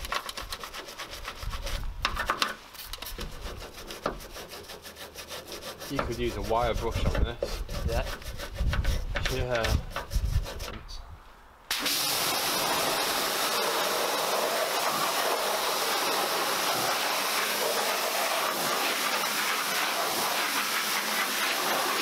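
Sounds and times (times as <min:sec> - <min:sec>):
pressure washer spraying water: 0:11.7 - 0:22.0.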